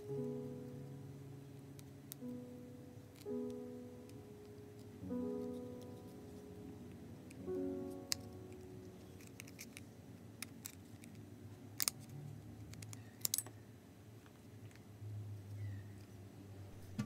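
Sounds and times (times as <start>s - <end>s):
tools clicking on metal parts: 12.7s - 13.5s.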